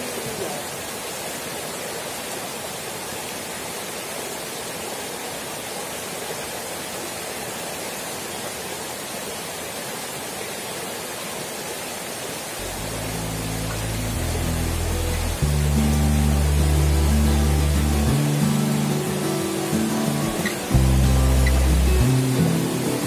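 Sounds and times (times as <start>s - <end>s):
stream rushing over stones: 0.0s - 23.0s
music: 12.6s - 23.0s.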